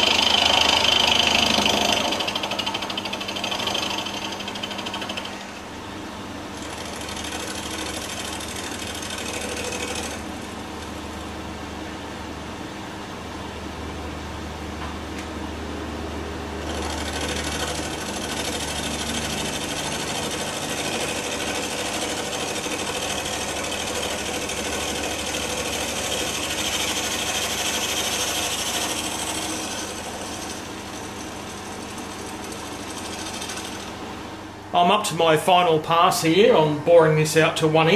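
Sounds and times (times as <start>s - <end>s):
end mill cutting metal: 0.0s - 5.7s, 6.6s - 11.4s, 16.6s - 34.0s.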